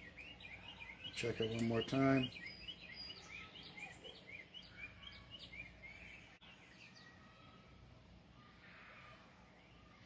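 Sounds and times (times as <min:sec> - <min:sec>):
soft bird chirps: 0:00.0 - 0:07.8.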